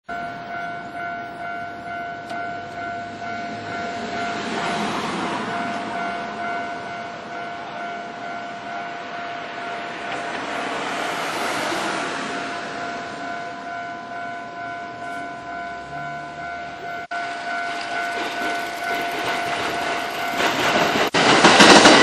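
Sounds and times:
level crossing electronic bell: 0.1s - 4.5s, 12.4s - 20.7s
broad rushing noise: 17.1s - 22.0s.

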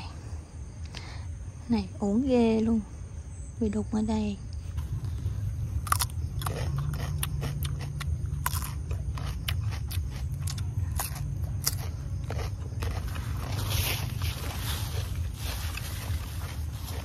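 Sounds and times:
low rumble: 2.8s - 17.0s
leafy rustling: 12.9s - 17.0s.

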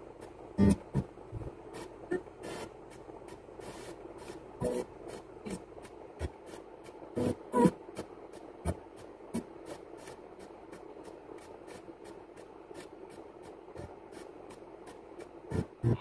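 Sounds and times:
snatches of broadcast sound: 0.6s - 16.0s
radio static: 4.6s - 6.3s, 7.2s - 7.8s, 15.5s - 16.0s.

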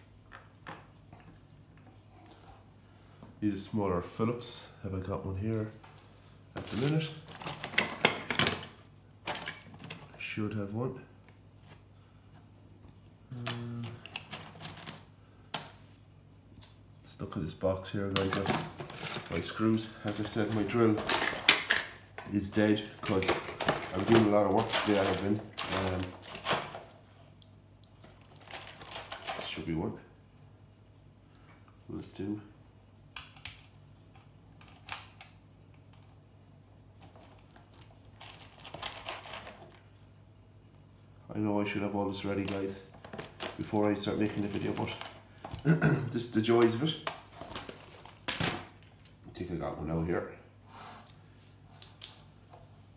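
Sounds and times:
faint steady hum: 0.0s - 52.9s
hand tools clinking: 18.1s - 26.9s, 42.4s - 46.0s.

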